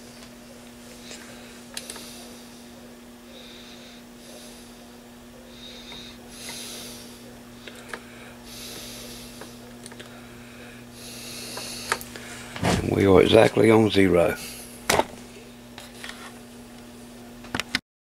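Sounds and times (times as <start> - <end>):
low electrical hum: 0.0 - 17.8
person breathing through nose: 3.3 - 4.9, 5.5 - 12.6.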